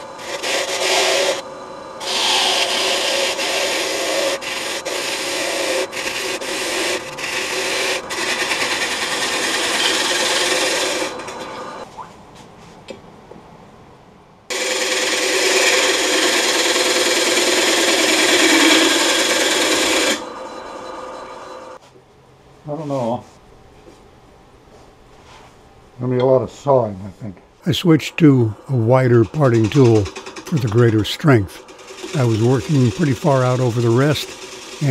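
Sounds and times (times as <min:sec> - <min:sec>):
sandpaper rasping on spinning wood: 0:00.0 - 0:01.4, 0:02.0 - 0:11.4, 0:14.5 - 0:20.2, 0:28.9 - 0:34.9.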